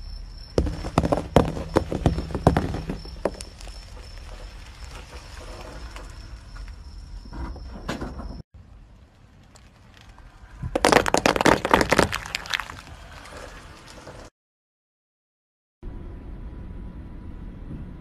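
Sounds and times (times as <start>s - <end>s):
balls bursting under tyre: 0.5s - 6.1s, 9.3s - 14.1s
tyre rumbling on concrete: 0.5s - 6.6s, 10.5s - 14.3s.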